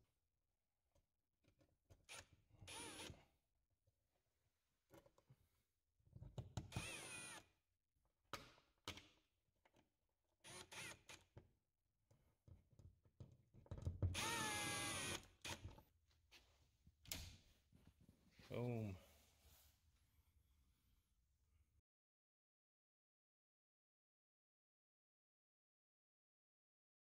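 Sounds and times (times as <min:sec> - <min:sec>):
power drill whining: 0:02.7 - 0:03.2, 0:06.7 - 0:07.5, 0:10.4 - 0:11.2, 0:14.2 - 0:15.6.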